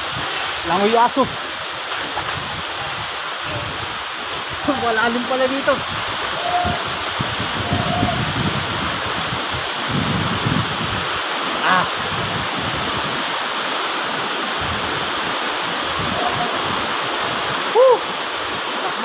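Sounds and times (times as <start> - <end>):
waterfall rushing: 0.0 - 19.0
man saying ah: 4.6 - 5.8, 11.6 - 12.0.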